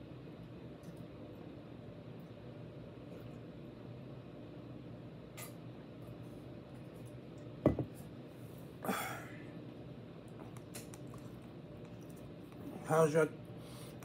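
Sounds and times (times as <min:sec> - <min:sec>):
metal tumbler knocking on table: 0:07.6 - 0:07.9.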